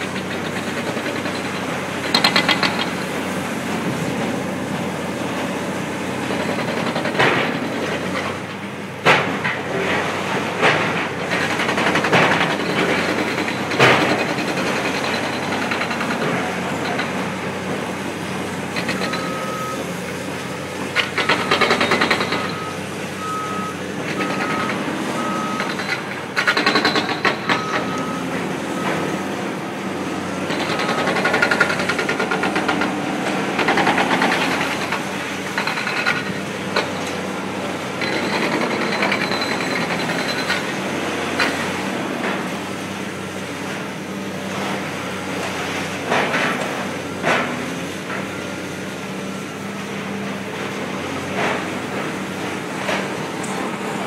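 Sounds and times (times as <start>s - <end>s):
excavator diesel engine running: 0.0s - 54.0s
reversing alarm beeping: 18.8s - 19.9s, 20.5s - 29.2s, 30.5s - 32.4s.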